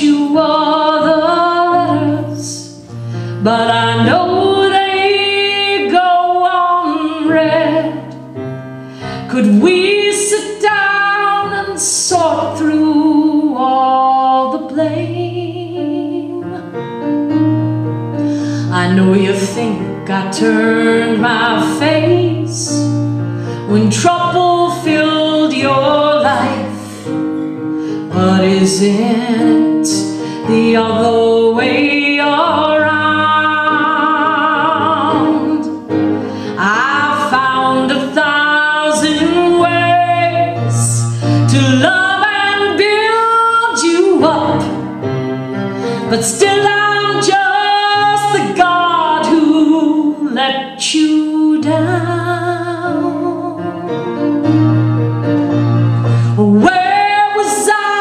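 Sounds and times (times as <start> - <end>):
woman singing: 0.0 - 8.2, 9.1 - 17.0, 18.3 - 27.2, 28.0 - 45.1, 45.8 - 54.2, 56.3 - 58.0
electronic keyboard chords: 53.2 - 57.2.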